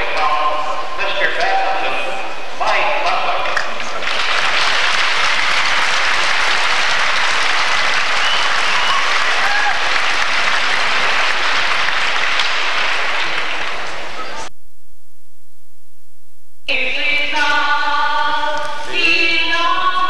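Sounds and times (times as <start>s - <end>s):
arena crowd applauding: 3.3s - 14.5s.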